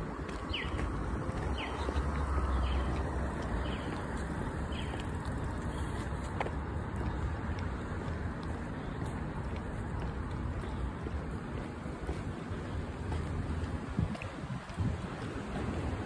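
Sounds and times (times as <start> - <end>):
steady street hiss: 0.0 - 16.0
wind rumbling on microphone: 0.0 - 16.0.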